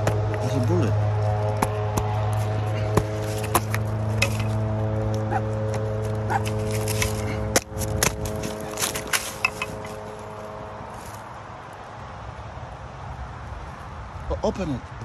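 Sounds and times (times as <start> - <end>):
droning background music: 0.0 - 11.4
metal blade scraping tree bark: 2.8 - 5.4, 6.3 - 11.2.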